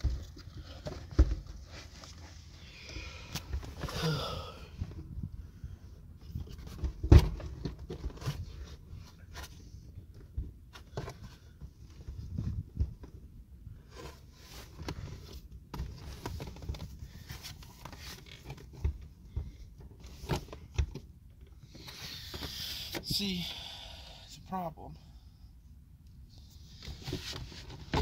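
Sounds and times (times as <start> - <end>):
wind rumble on microphone: 12.1 - 13.1.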